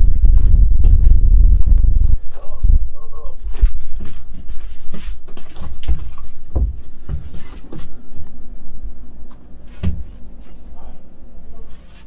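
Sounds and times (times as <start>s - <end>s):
low earthquake rumbling: 0.0s - 4.0s
heavy thuds and rattling: 5.3s - 8.0s, 9.8s - 10.2s.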